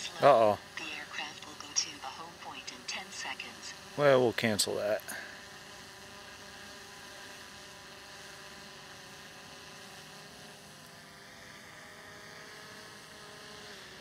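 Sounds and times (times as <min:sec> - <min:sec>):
drone propellers humming: 0:00.0 - 0:14.0.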